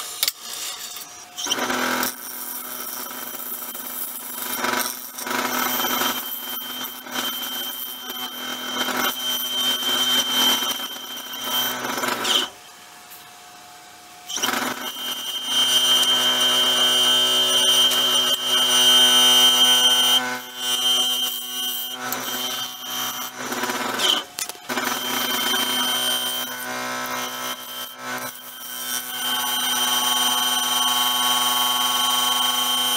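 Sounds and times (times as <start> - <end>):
lathe motor whine: 14.4 - 32.9.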